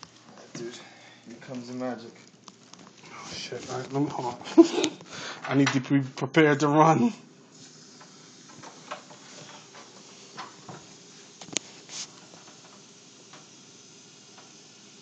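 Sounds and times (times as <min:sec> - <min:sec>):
aerosol can spraying: 0:07.5 - 0:15.0.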